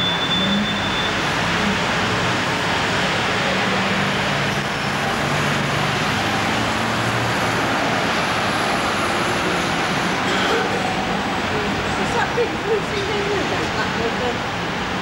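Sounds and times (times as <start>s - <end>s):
road traffic: 0.0s - 15.0s.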